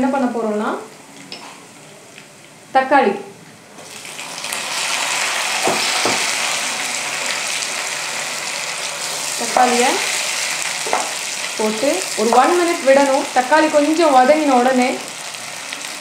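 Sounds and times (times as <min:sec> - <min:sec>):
tomatoes sizzling in oil: 0:03.8 - 0:16.0
spoon knocking on pan: 0:05.6 - 0:06.3, 0:10.8 - 0:11.2.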